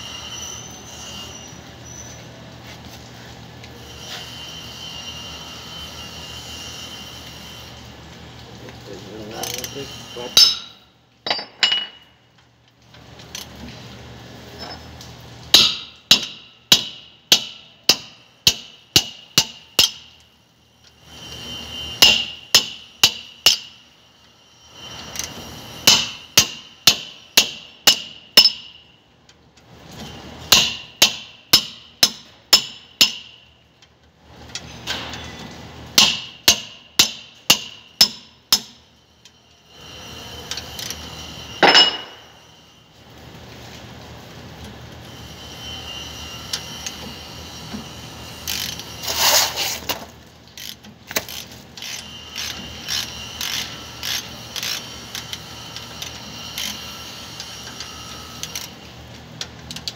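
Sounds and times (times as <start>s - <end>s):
hammer ringing on steel hub: 10.3s - 12.0s, 15.5s - 20.1s, 22.0s - 23.8s, 25.8s - 28.8s, 30.5s - 33.5s, 36.0s - 38.8s, 41.6s - 42.4s.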